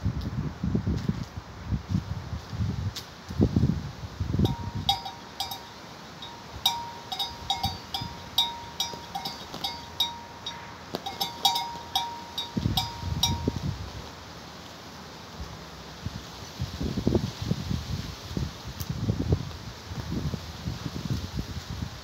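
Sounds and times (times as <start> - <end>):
wind buffeting microphone: 0.0 - 14.0, 16.1 - 22.0
small metal bell clinking: 4.4 - 13.7.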